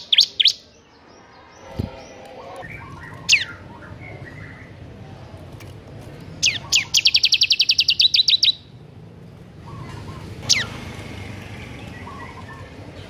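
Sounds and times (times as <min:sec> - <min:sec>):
bird singing down-slurred notes: 0:00.0 - 0:04.8, 0:06.4 - 0:08.7.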